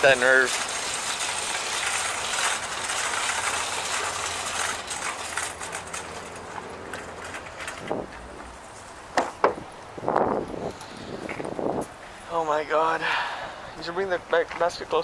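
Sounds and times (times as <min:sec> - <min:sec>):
sharp knocks: 0:09.1 - 0:09.6.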